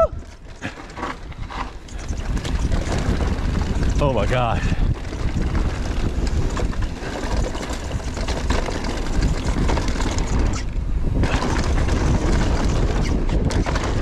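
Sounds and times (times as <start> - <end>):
bike rattling on dirt trail: 0.0 - 14.0
wind buffeting microphone: 0.0 - 14.0.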